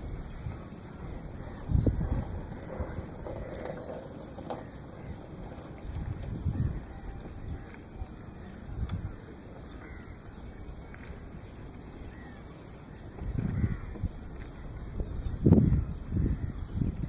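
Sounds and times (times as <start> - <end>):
wind gusts on microphone: 0.0 - 17.0
crows cawing: 9.8 - 10.2, 13.5 - 14.0.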